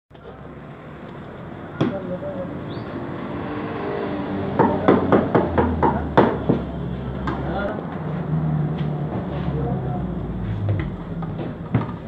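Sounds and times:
traffic hum: 0:00.1 - 0:12.0
sharp knocks: 0:04.6 - 0:06.7.

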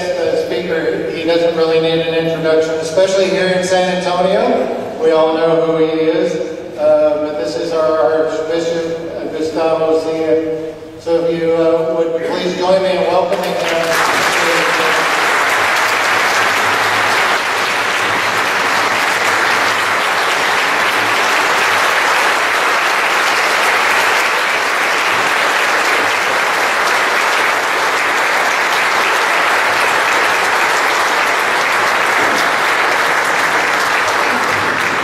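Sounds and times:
audience applauding: 0:13.3 - 0:35.0.

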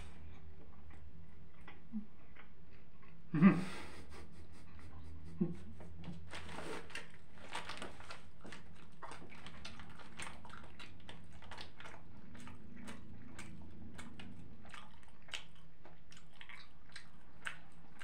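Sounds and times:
chewing with mouth clicks: 0:00.0 - 0:03.3, 0:05.8 - 0:18.0
low hum: 0:00.0 - 0:08.5.

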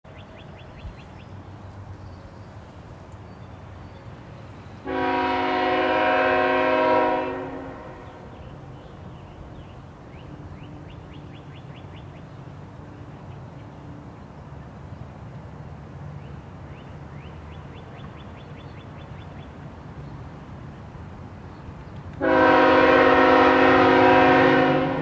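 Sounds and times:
train rumbling: 0:00.1 - 0:25.0
locomotive air horn blast: 0:04.8 - 0:08.3, 0:22.2 - 0:25.0.

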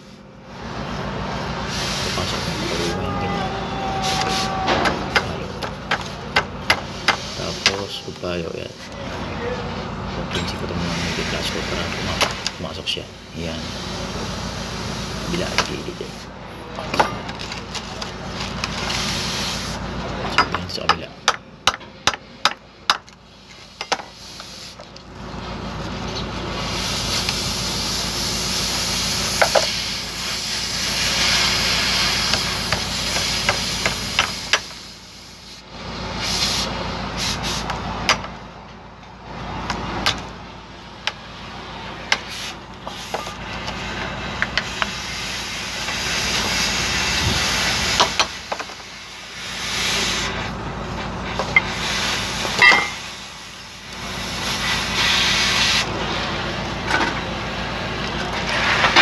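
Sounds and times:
loud rushing hiss: 0:01.4 - 0:08.2, 0:10.8 - 0:16.4, 0:18.8 - 0:19.9, 0:26.5 - 0:37.7, 0:42.2 - 0:50.5, 0:51.6 - 0:56.3.

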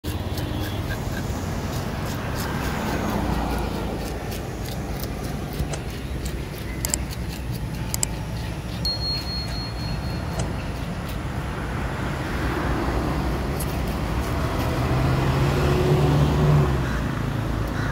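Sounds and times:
fish scaler scraping scales: 0:00.0 - 0:11.7, 0:13.2 - 0:15.4
road traffic rumble: 0:00.0 - 0:17.9.

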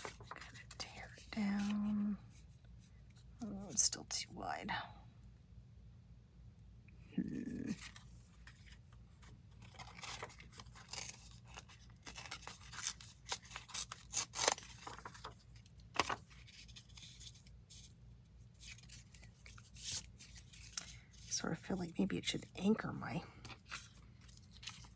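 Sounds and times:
paper rustling: 0:00.0 - 0:01.9, 0:07.7 - 0:18.0, 0:18.6 - 0:21.3
paper tearing: 0:09.6 - 0:15.3.

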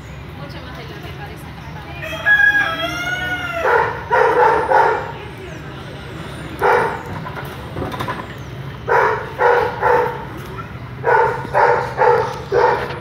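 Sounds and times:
dog barking: 0:03.6 - 0:05.2, 0:06.6 - 0:07.1, 0:08.9 - 0:13.0.

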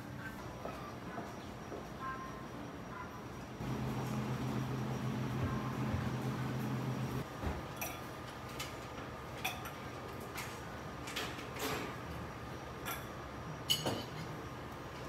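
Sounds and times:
steady low hum: 0:00.2 - 0:07.3.

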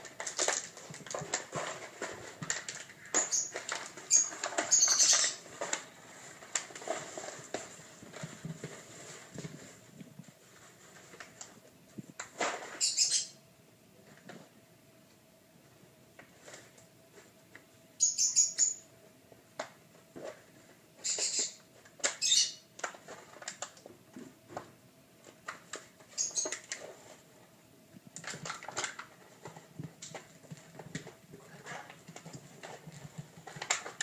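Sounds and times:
plastic tub scraping on tile: 0:00.0 - 0:09.8
faint steady hum: 0:00.0 - 0:34.0.

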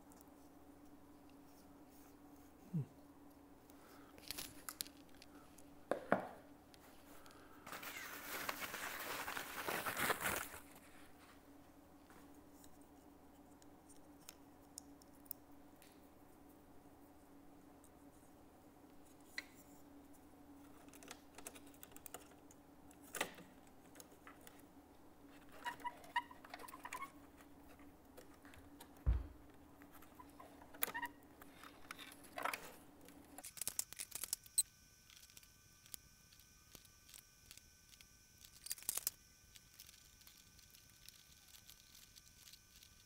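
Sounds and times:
faint steady hum: 0:00.0 - 0:43.0
dull thump: 0:29.0 - 0:29.4.

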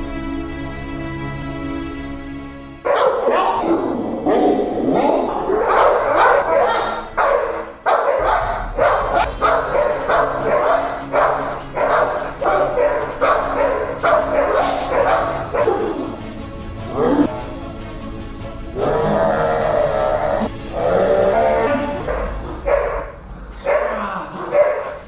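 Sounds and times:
dog barking: 0:02.9 - 0:16.0, 0:22.0 - 0:25.0.

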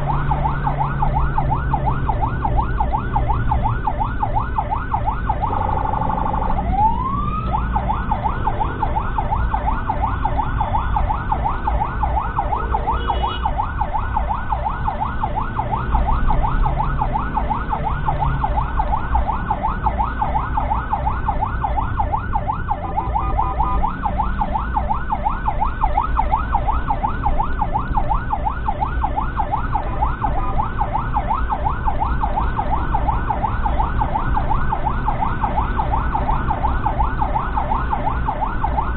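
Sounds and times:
ambulance siren yelping: 0:00.0 - 0:38.9
engine and road rumble: 0:00.0 - 0:38.9.

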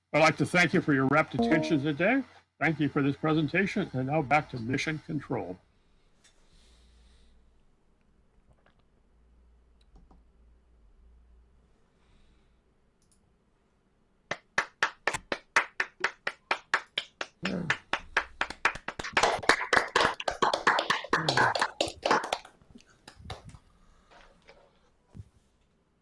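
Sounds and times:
small group applauding: 0:14.3 - 0:23.6.

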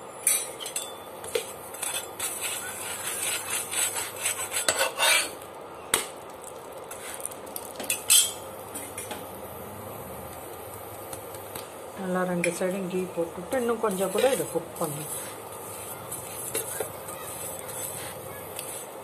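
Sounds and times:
spatula scraping and tapping on griddle: 0:00.2 - 0:06.2, 0:06.8 - 0:09.3, 0:13.5 - 0:19.0.

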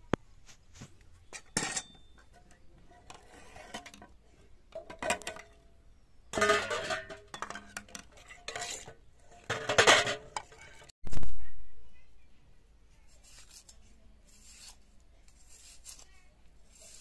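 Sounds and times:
metal cookware clattering: 0:01.3 - 0:05.6, 0:06.3 - 0:10.9.

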